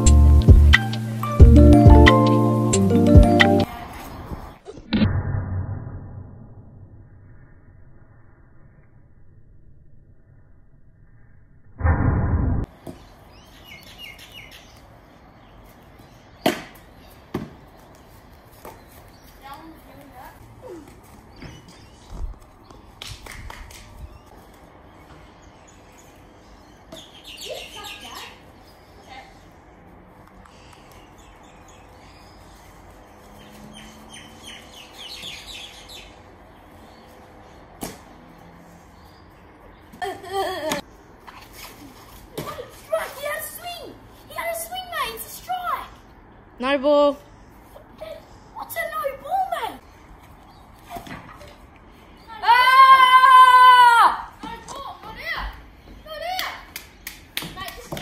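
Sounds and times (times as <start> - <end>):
loud low burst of noise: 11.7 - 12.7
birds chirping: 12.7 - 23.3, 23.9 - 41.4.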